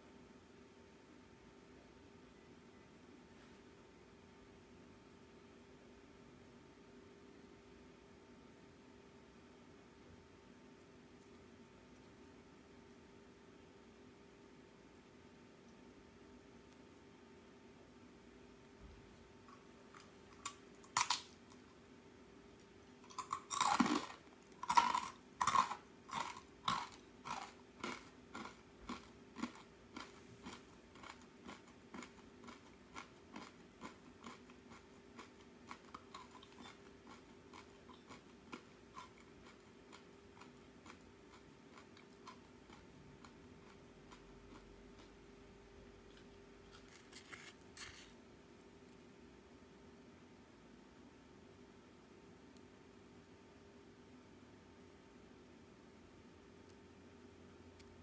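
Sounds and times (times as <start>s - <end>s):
chewing crunches: 19.5s - 21.7s, 23.1s - 45.2s, 46.0s - 48.2s
rice cracker crunching: 19.9s - 21.6s, 23.1s - 45.1s, 46.1s - 48.2s.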